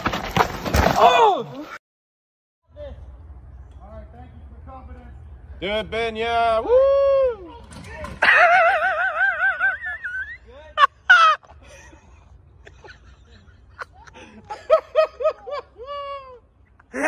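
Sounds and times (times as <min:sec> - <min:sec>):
person whooping: 0:06.6 - 0:07.6
people laughing: 0:08.2 - 0:17.0.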